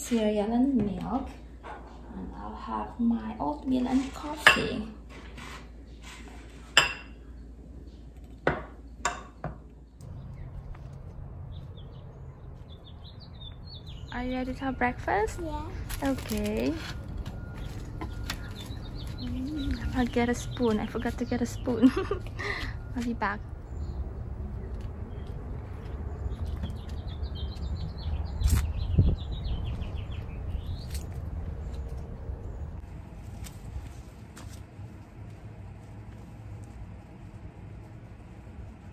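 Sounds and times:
low background hum: 0.0 - 38.9
songbird chirping: 10.0 - 32.8
low rumble: 10.0 - 34.1.

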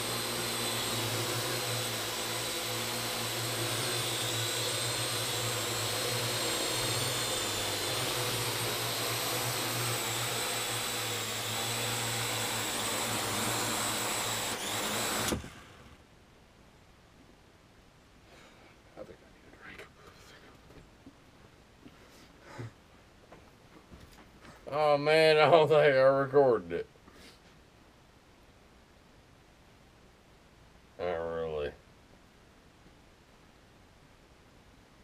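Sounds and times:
drone rotors whirring: 0.0 - 16.0.

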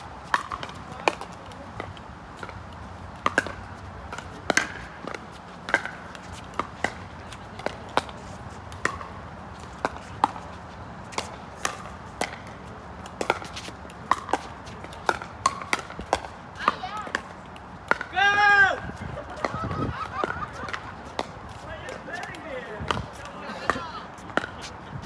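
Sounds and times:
ball bouncing on court: 0.2 - 2.6, 3.2 - 9.2, 11.1 - 18.5, 19.3 - 24.7
paddles hitting plastic ball: 11.1 - 18.6.

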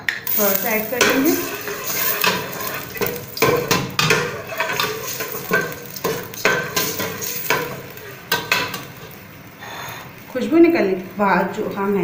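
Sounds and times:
garlic sizzling in oil: 0.2 - 12.0
spoon scraping a metal pot: 0.4 - 9.0.

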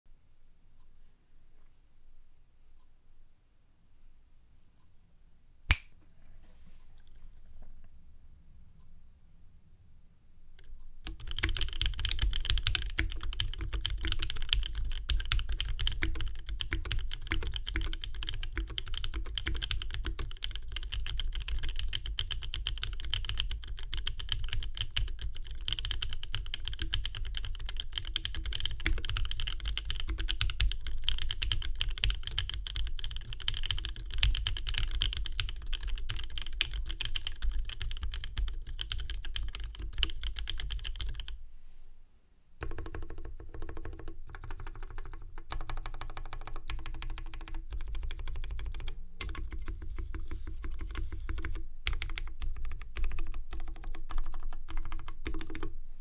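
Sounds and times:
typing on mechanical keyboard: 11.0 - 41.4, 42.6 - 55.7.

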